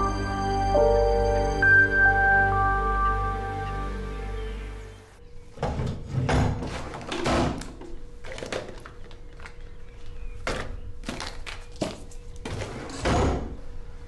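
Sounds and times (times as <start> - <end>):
hand rummaging through packets: 8.2 - 12.3.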